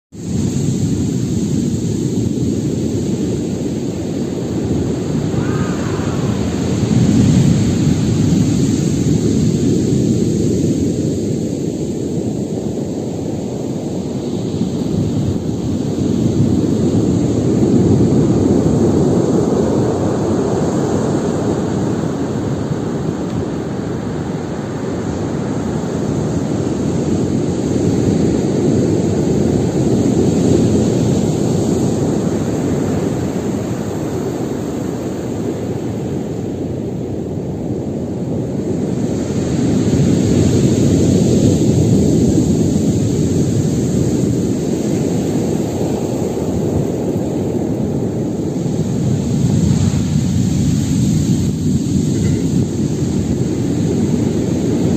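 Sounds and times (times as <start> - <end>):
heavy waves breaking: 0.2 - 54.9.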